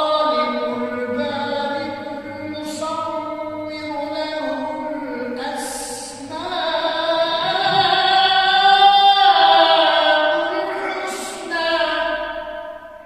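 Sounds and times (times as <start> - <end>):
man chanting melodic recitation: 0.0 - 12.7.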